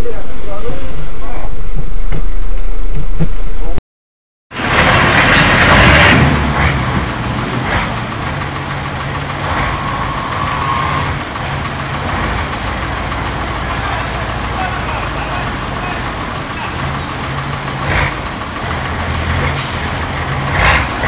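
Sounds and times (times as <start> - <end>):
road noise: 4.5 - 21.0
vehicle engine running: 4.6 - 21.0.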